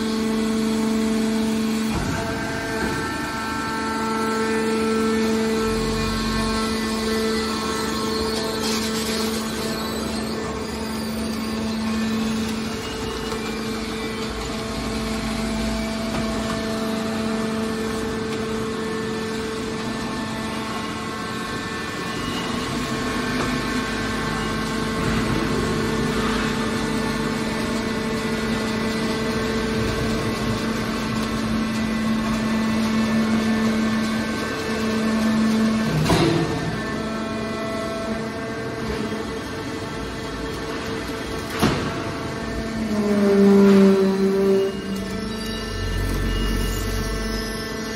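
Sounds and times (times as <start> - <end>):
hydraulic pump droning hum: 0.0 - 47.9.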